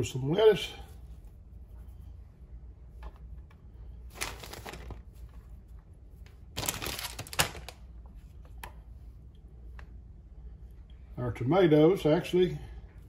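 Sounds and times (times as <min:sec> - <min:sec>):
lettuce rustling and crunching: 0:04.1 - 0:05.4, 0:06.5 - 0:07.8.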